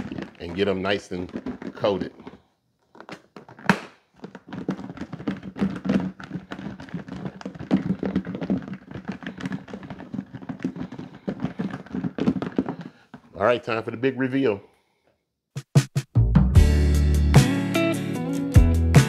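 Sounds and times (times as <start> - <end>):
chicken pieces tumbling in plastic container: 0.0 - 2.4, 3.0 - 13.3.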